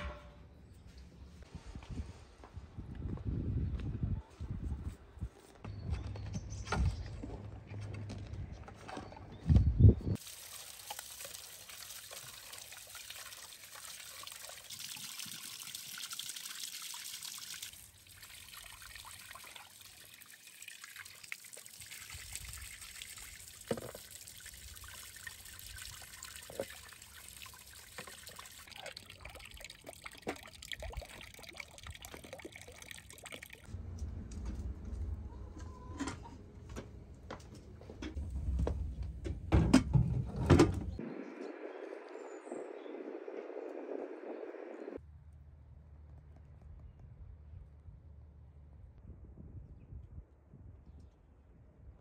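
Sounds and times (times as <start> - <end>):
water trickling and pouring: 10.2 - 33.7.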